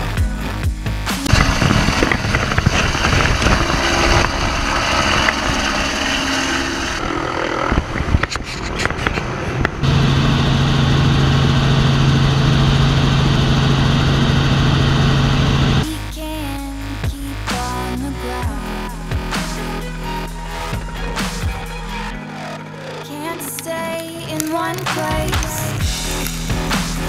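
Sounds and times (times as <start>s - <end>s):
helicopter cabin drone: 0.0s - 27.0s
helicopter flying: 1.2s - 15.9s, 18.2s - 27.0s
sharp clicks: 23.0s - 26.9s.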